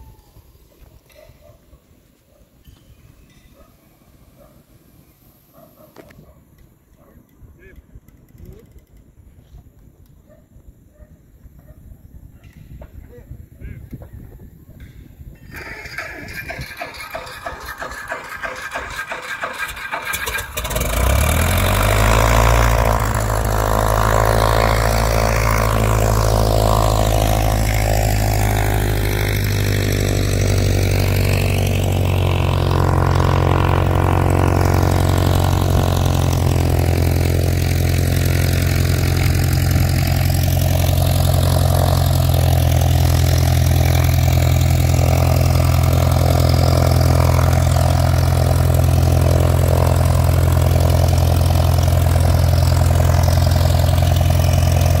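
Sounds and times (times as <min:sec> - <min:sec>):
propeller plane engine droning: 0:15.4 - 0:55.0.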